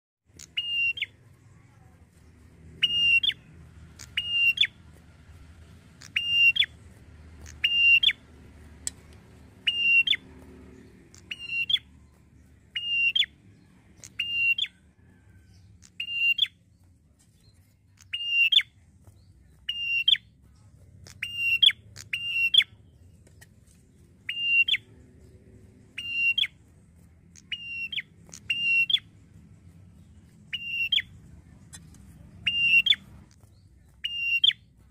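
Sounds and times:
bird calling sharp notes: 0:00.3 - 0:01.3, 0:02.8 - 0:04.9, 0:05.9 - 0:16.6, 0:18.0 - 0:18.8, 0:19.6 - 0:20.3, 0:21.0 - 0:22.8, 0:24.2 - 0:25.3, 0:25.9 - 0:26.6, 0:27.3 - 0:29.1, 0:30.4 - 0:34.8.

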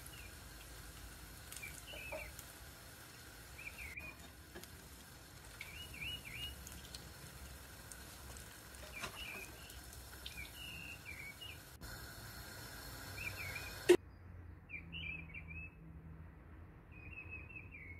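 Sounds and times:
small birds chirping: 0:00.0 - 0:11.8, 0:13.0 - 0:14.0
deep-frying sizzle in oil: 0:00.0 - 0:14.0.

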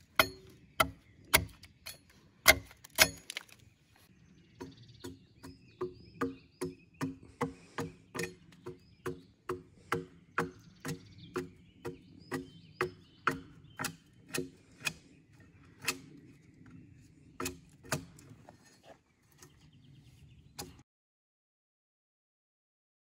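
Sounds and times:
axe striking a log: 0:00.0 - 0:03.6, 0:04.6 - 0:15.0, 0:17.4 - 0:18.2.

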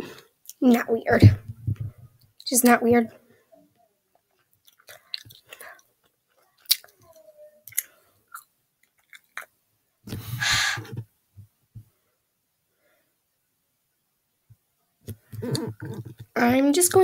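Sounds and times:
mouth clicks and lip smacks: 0:04.2 - 0:10.2, 0:15.0 - 0:16.4.

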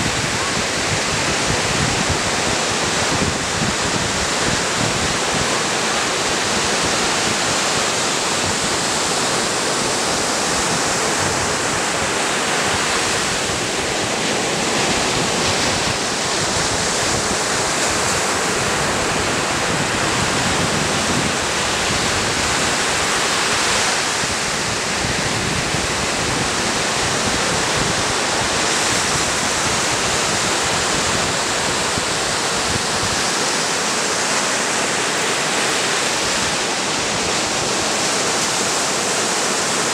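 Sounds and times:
small waves breaking on shore: 0:00.0 - 0:39.9.

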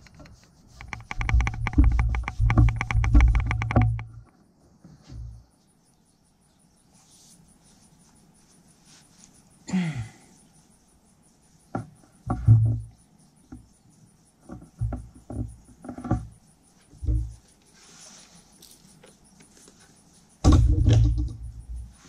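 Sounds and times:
knocks and clunks of handled parts: 0:00.0 - 0:04.4, 0:20.4 - 0:21.9.

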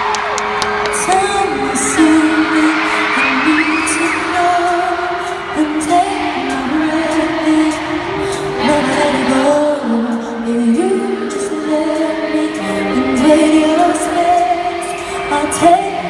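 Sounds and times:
fans screaming: 0:00.0 - 0:09.5
live concert music: 0:00.0 - 0:16.0.

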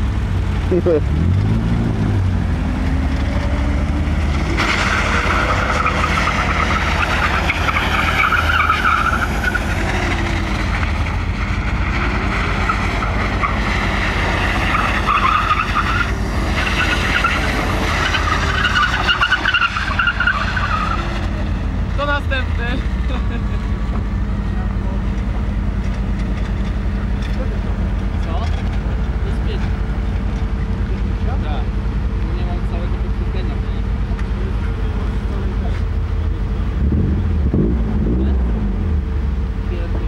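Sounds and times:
car engine revving: 0:00.0 - 0:40.0
tyres squealing: 0:04.1 - 0:31.2.

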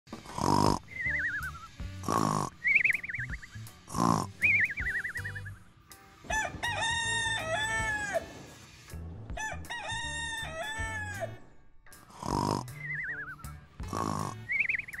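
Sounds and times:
rooster crowing: 0:06.3 - 0:08.4, 0:09.3 - 0:11.4.

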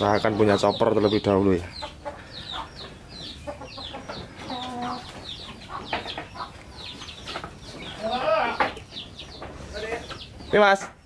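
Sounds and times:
chickens clucking: 0:00.0 - 0:11.0
chicks peeping: 0:00.0 - 0:11.0.

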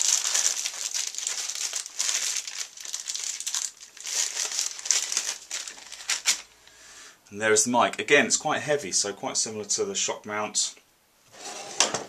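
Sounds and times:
plastic bag crinkling: 0:00.0 - 0:06.6.

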